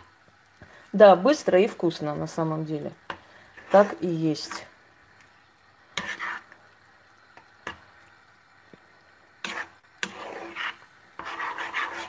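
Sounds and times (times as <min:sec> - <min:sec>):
spoon scraping frying pan: 0:03.0 - 0:04.2, 0:05.9 - 0:06.6, 0:07.3 - 0:08.0, 0:09.4 - 0:12.0.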